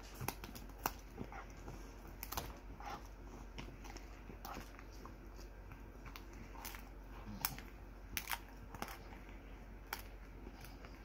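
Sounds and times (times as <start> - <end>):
dog chewing: 0.0 - 11.0
sharp crunches and cracks: 2.1 - 3.0.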